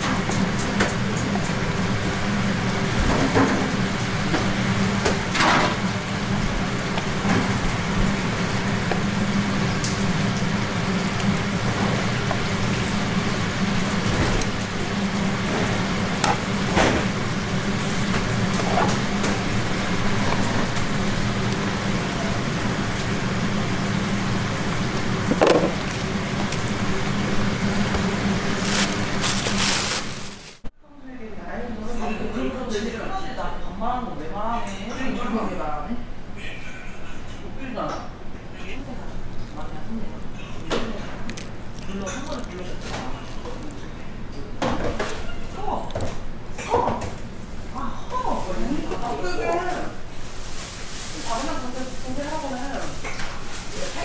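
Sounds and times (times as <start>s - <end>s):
kitchen hiss and hum: 0.0s - 30.7s, 35.2s - 54.0s
plastic lid and bag rustling: 28.4s - 30.6s.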